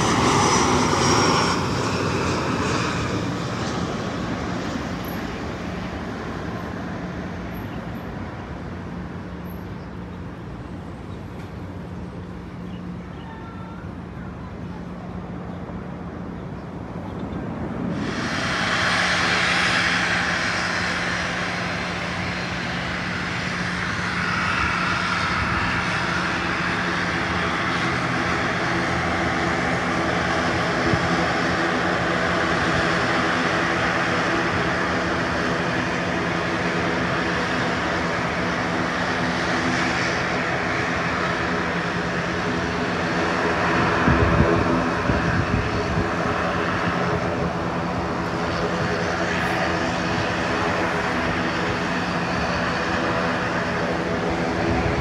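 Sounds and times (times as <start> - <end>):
airplane engine noise: 0.0 - 55.0.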